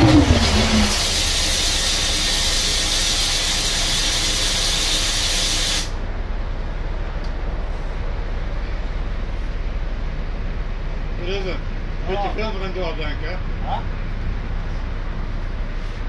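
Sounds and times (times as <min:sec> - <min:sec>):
engine falling tone: 0:00.0 - 0:02.0
compressed air hissing: 0:00.1 - 0:06.0.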